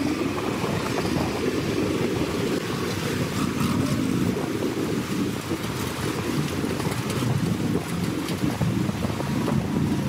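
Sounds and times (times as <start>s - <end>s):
river rushing: 0.0s - 10.0s
water surging against truck: 0.0s - 10.0s.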